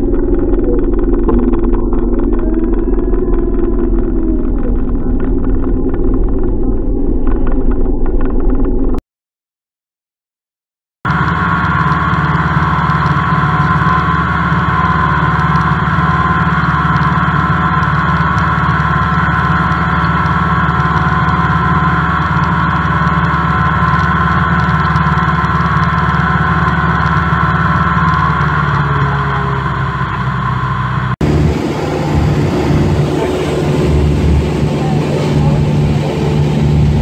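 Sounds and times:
light aircraft engine drone: 11.1s - 37.0s.

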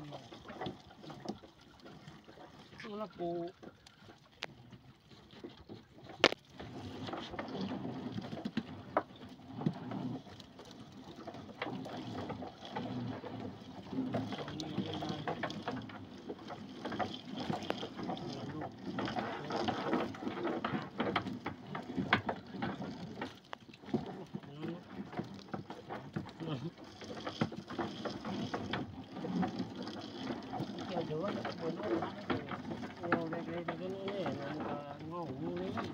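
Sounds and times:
wet net rustling and dripping: 0.0s - 35.9s.

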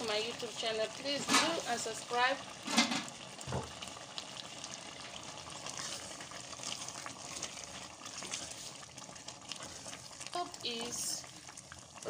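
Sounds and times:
soup simmering and bubbling: 0.0s - 12.0s
wooden spoon stirring soup: 2.5s - 12.0s.

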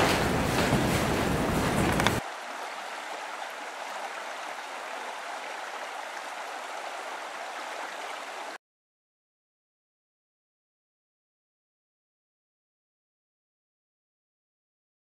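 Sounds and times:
running water rushing: 0.0s - 8.6s.

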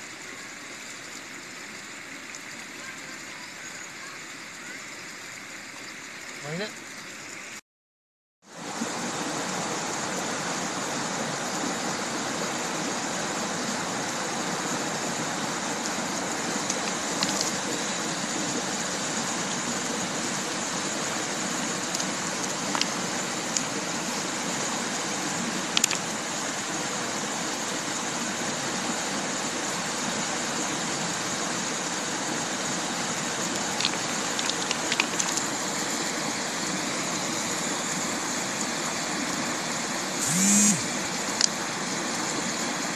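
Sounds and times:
river flowing over stones: 0.0s - 7.6s, 8.5s - 42.9s
stones knocking together: 25.8s - 26.1s, 33.5s - 35.5s.

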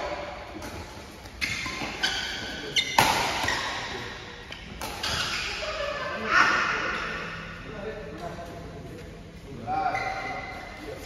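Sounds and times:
rackets hitting shuttlecock: 2.7s - 5.4s.

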